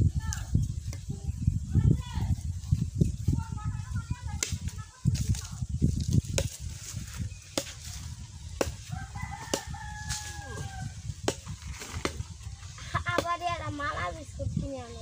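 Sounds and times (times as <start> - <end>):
rooster crowing: 8.9 - 11.0.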